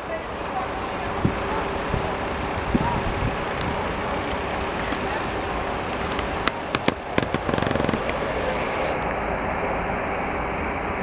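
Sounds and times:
diesel coach engine running: 0:00.0 - 0:11.0
road traffic noise: 0:00.0 - 0:11.0
sharp clicks and knocks: 0:05.9 - 0:08.2.

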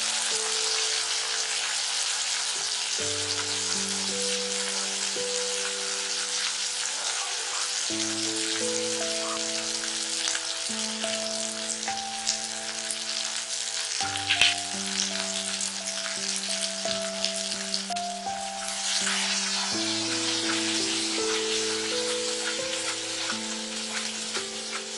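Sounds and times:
shallots and garlic sizzling in oil: 0:00.0 - 0:24.9.

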